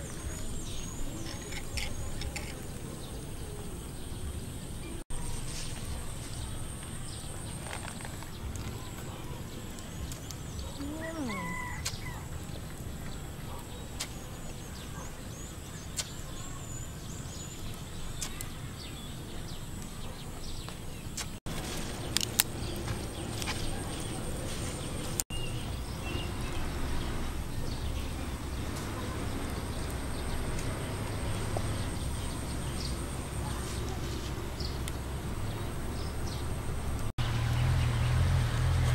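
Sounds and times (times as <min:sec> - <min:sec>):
faint clicks and chirps: 0:05.7 - 0:11.0, 0:11.7 - 0:21.4, 0:27.7 - 0:35.6.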